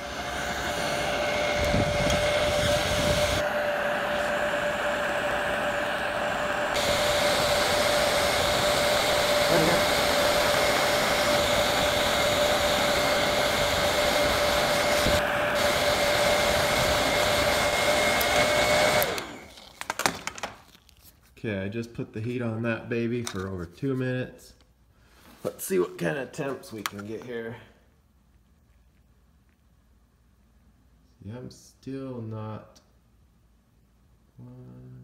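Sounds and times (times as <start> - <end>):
fan motor whine: 0.0 - 20.0
heat gun blowing air: 0.0 - 20.1.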